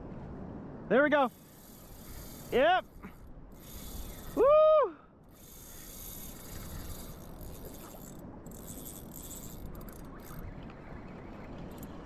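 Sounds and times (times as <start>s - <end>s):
fishing reel drag buzzing: 1.3s - 4.5s, 5.3s - 10.5s.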